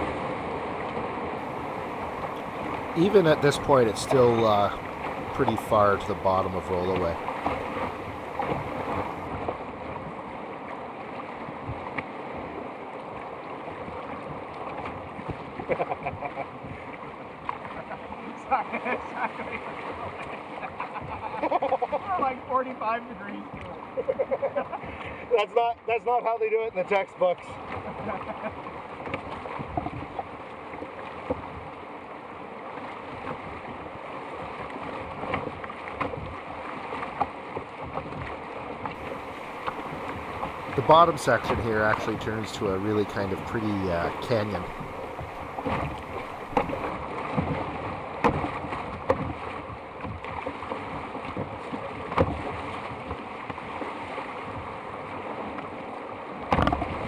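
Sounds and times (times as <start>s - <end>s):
paddle stroke splashes: 0.0s - 15.8s, 16.6s - 22.7s, 27.6s - 57.0s
whitewater rapids rushing: 1.4s - 9.3s, 39.0s - 47.1s.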